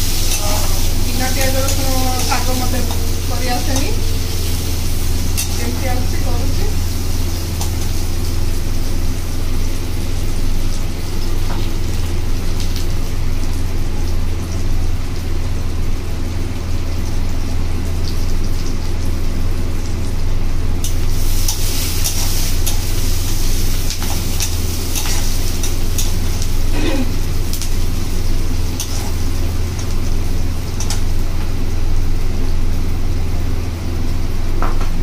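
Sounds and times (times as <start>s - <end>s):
low hum: 0.0s - 11.0s
onions sizzling in a pan: 0.0s - 35.0s
metal spatula scraping and tapping: 23.9s - 26.2s.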